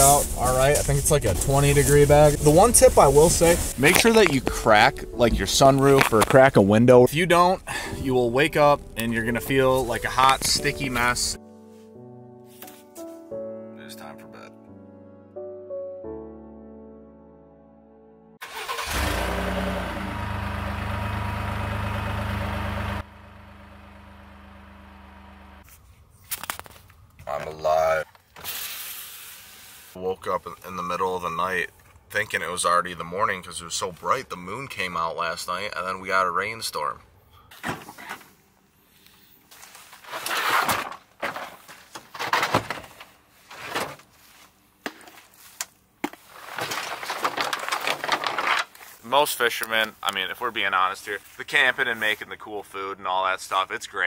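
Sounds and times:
clothing and gear rustling: 0.0s - 4.5s, 37.8s - 42.0s, 42.8s - 49.1s
truck engine starting and idling: 18.4s - 25.6s.

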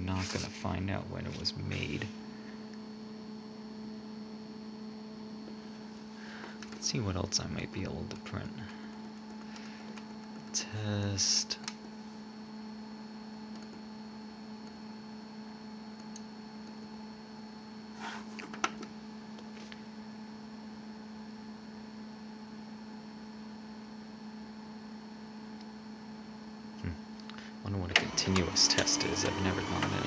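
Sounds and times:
laser printer humming: 27.6s - 30.0s.

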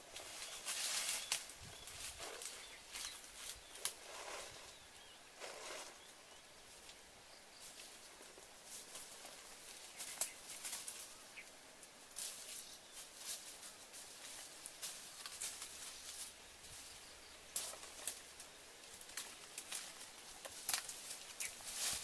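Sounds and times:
footsteps crunching dry leaves: 0.0s - 4.7s, 12.2s - 17.0s, 17.6s - 22.0s.

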